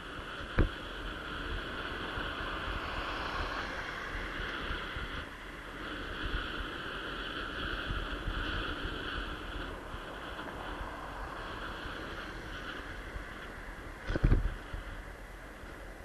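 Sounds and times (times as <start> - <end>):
low road rumble: 0.0 - 16.0
wind rush on microphone: 0.0 - 16.0.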